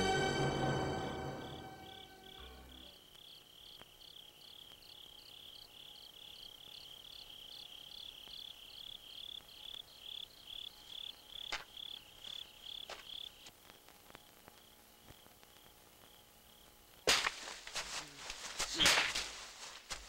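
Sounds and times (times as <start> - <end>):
cricket chirping: 0.4 - 13.5, 14.1 - 17.0.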